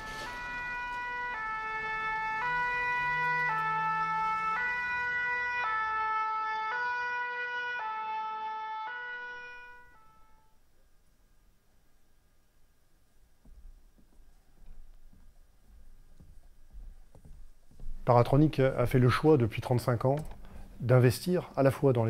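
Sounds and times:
fire engine two-tone siren: 0:00.0 - 0:10.6.

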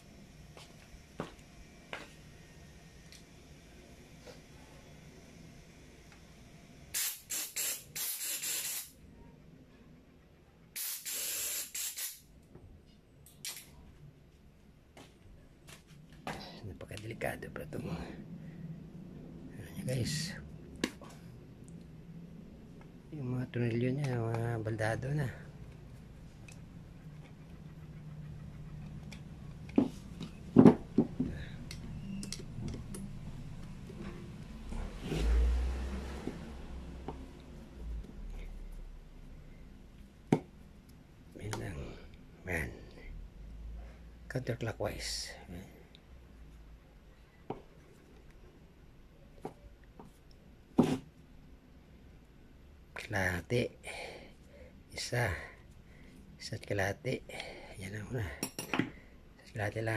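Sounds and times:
faint steady hum: 0:00.0 - 0:59.9
compressed air blasts from nozzle: 0:06.9 - 0:09.0, 0:10.8 - 0:12.3.

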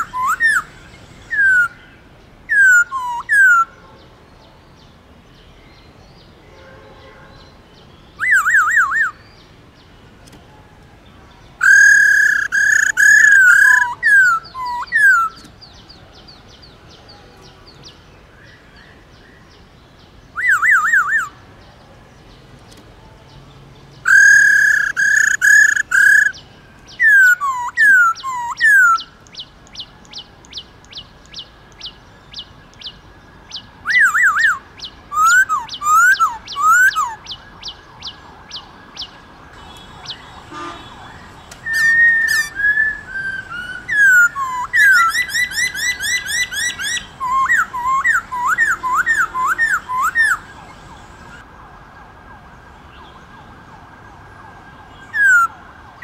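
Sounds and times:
bird whistling song: 0:00.0 - 0:01.9, 0:02.5 - 0:03.7, 0:08.0 - 0:09.4, 0:11.6 - 0:15.9, 0:20.3 - 0:21.4, 0:24.0 - 0:51.4.

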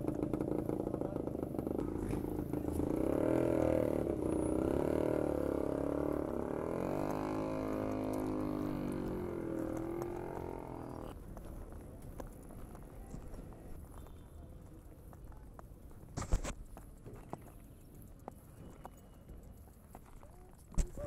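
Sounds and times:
small engine running unevenly: 0:00.0 - 0:11.2.

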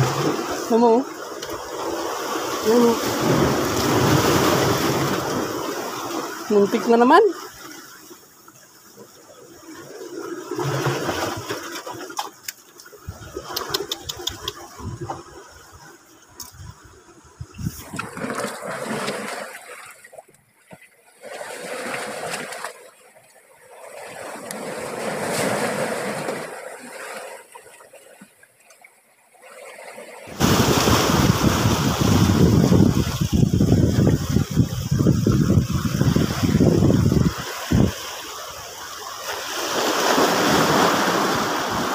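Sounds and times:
sea waves washing over rocks: 0:00.0 - 0:20.2, 0:21.1 - 0:27.9, 0:29.4 - 0:41.9
wind buffeting microphone: 0:13.0 - 0:18.2, 0:30.4 - 0:38.1.

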